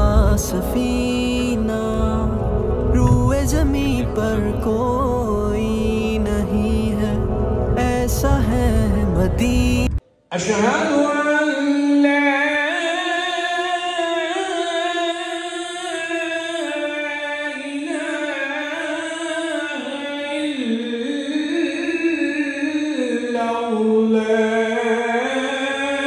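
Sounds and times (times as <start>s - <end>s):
solo voice singing devotional song: 0.0s - 26.0s.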